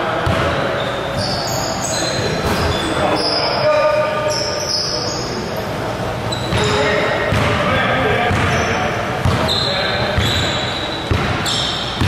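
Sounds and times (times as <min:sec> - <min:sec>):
sneakers squeaking: 0:00.0 - 0:12.0
basketball bouncing: 0:00.2 - 0:00.6, 0:06.4 - 0:09.5, 0:10.1 - 0:12.0.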